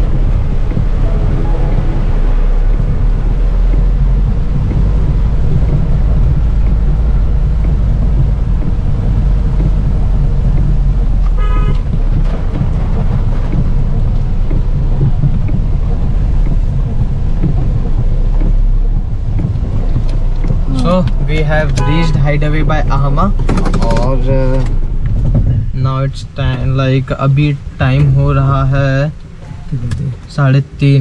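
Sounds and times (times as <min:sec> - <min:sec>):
car engine and road rumble: 0:00.0 - 0:31.0
rain hiss: 0:00.0 - 0:31.0
car horn toot: 0:11.3 - 0:11.9, 0:21.7 - 0:22.4.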